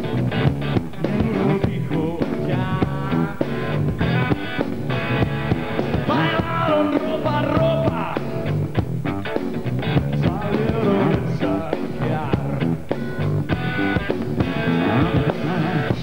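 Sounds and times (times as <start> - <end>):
rock band playing: 0.0 - 16.0
man singing: 0.9 - 4.4, 6.0 - 8.5, 10.1 - 12.9, 14.6 - 16.0.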